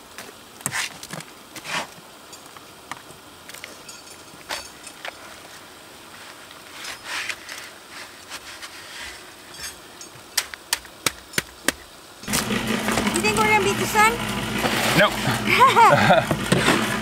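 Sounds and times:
shovel scraping wet concrete: 0:01.6 - 0:01.9, 0:14.5 - 0:17.0.

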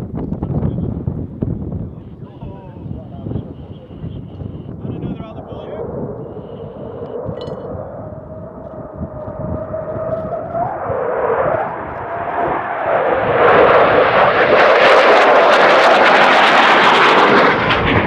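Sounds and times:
jet roar with crackle: 0:04.3 - 0:18.0.

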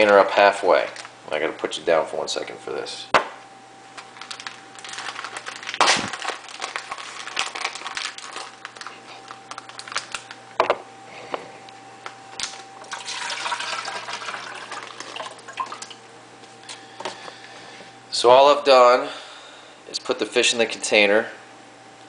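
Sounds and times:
plastic crinkling: 0:04.0 - 0:10.6
water pouring and splashing: 0:12.8 - 0:16.0.

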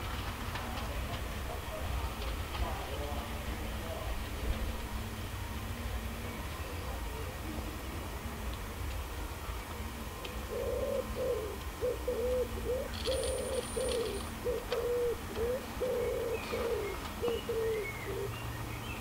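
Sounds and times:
small birds chirping faintly: 0:00.8 - 0:19.0
pigeon cooing: 0:10.5 - 0:18.4.

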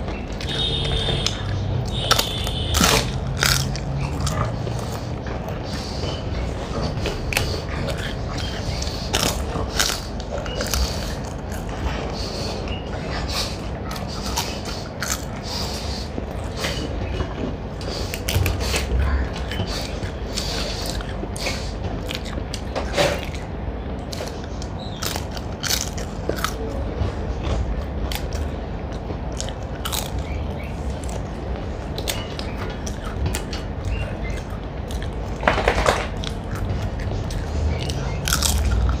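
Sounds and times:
chewing and mouth noises: 0:00.0 - 0:39.0
crunchy clicks: 0:00.0 - 0:39.0.

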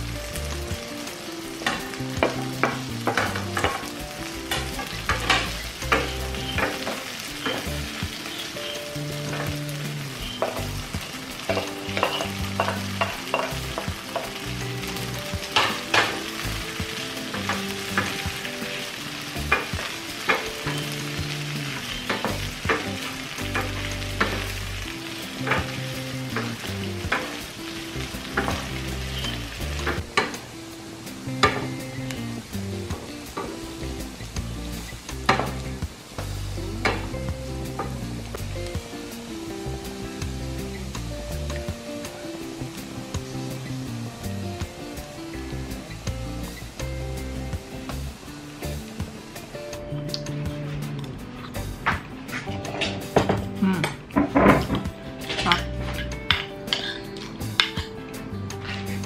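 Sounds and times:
food sizzling in a frying pan: 0:00.0 - 0:59.0
spatula tapping and scraping pan: 0:01.6 - 0:03.9, 0:04.5 - 0:07.8, 0:11.4 - 0:14.5, 0:15.4 - 0:16.4, 0:19.4 - 0:21.4, 0:22.0 - 0:24.6, 0:25.4 - 0:27.5, 0:28.3 - 0:28.8.

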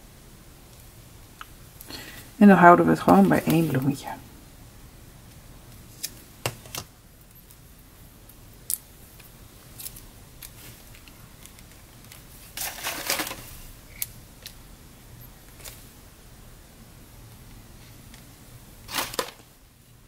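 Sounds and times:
paper rustling: 0:12.0 - 0:13.6, 0:18.9 - 0:19.4.

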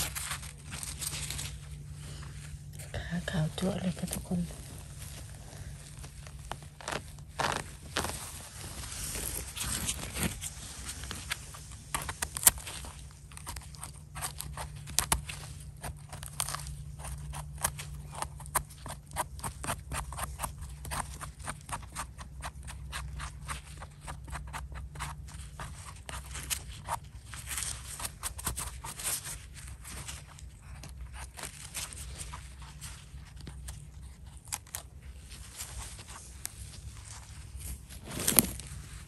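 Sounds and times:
steady low hum: 0:00.0 - 0:39.0
knife scraping mushroom stem: 0:09.3 - 0:32.8.

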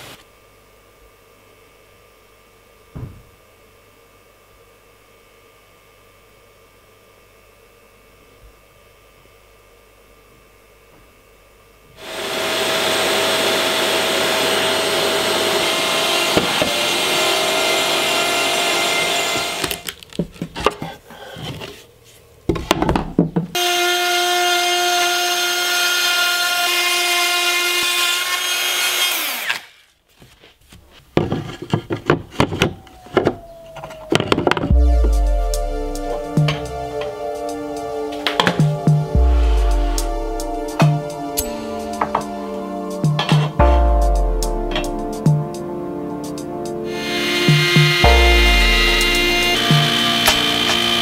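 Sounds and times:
router spindle whining: 0:12.0 - 0:19.8, 0:46.9 - 0:51.0
cutting noise: 0:46.9 - 0:51.0.

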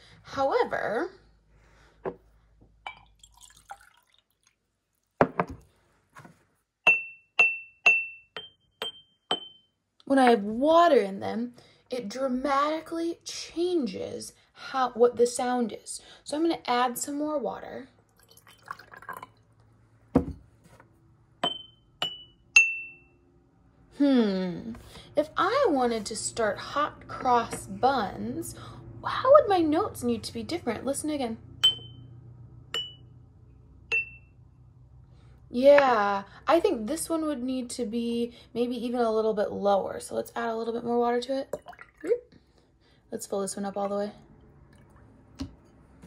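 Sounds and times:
water pouring into glass jar: 0:02.9 - 0:04.6, 0:18.1 - 0:19.5, 0:41.5 - 0:42.2
glass jar knocking on table: 0:05.2 - 0:05.6, 0:20.2 - 0:20.4, 0:21.4 - 0:22.3
mallet striking ringing glass jars: 0:06.9 - 0:09.8, 0:21.4 - 0:23.1, 0:31.6 - 0:32.0, 0:32.7 - 0:33.1, 0:33.9 - 0:34.3.

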